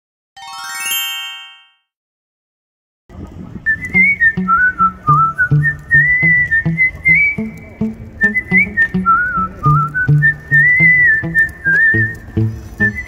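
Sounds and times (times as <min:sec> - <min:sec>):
rising sparkle chime: 0:00.4 - 0:01.8
whistled tune over bouncy beat: 0:03.7 - 0:13.0.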